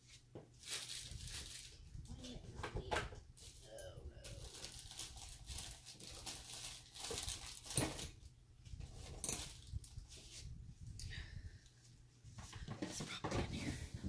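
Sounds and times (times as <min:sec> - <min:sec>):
papers and plastic rustling: 0:00.0 - 0:10.5.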